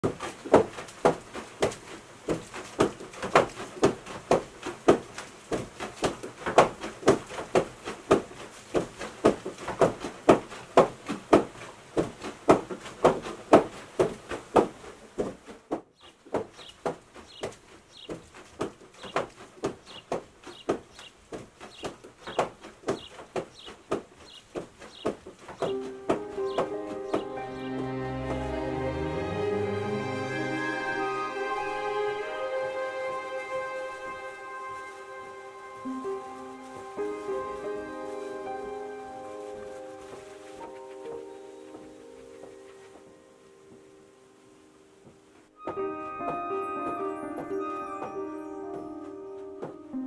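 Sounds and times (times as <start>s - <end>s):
wooden hammers pounding: 0.0s - 28.4s.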